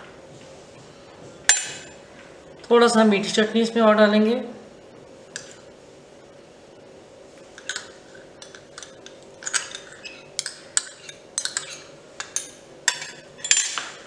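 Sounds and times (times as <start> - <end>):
metal spoon clinking on glass bowls: 7.6 - 13.8.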